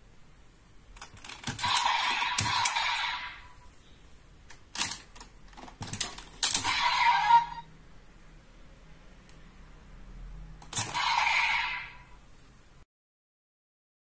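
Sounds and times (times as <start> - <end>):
plastic toy clicks and snaps: 4.5 - 6.8, 10.6 - 11.1
electronic sound effect bursts: 6.6 - 7.7, 10.8 - 12.1.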